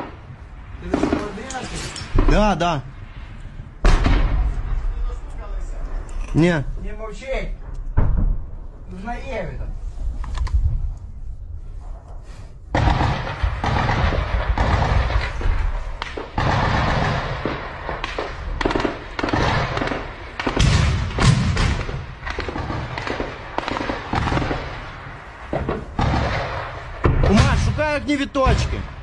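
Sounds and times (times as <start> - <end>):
gunfire: 0.8 - 2.5, 3.8 - 4.8, 12.7 - 29.0.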